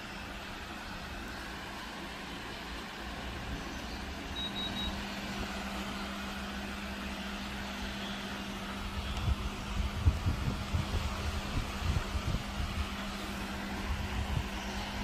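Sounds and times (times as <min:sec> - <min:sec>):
fan air rushing: 0:00.0 - 0:15.0
low motor hum: 0:00.0 - 0:15.0
quick high beeps: 0:04.3 - 0:05.0.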